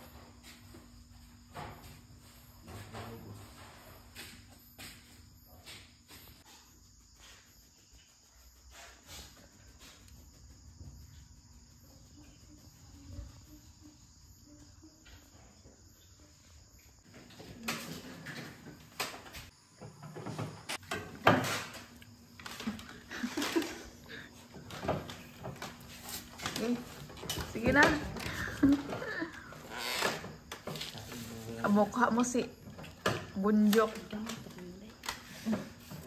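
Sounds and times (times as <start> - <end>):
sharp knocks and clatters: 17.2 - 22.8.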